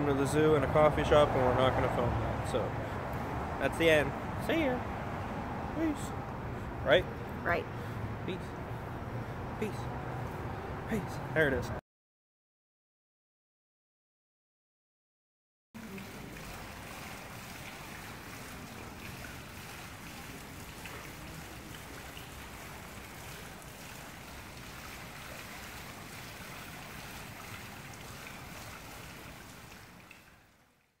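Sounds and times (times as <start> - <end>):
fountain water splashing: 0.0 - 11.6, 15.8 - 31.0.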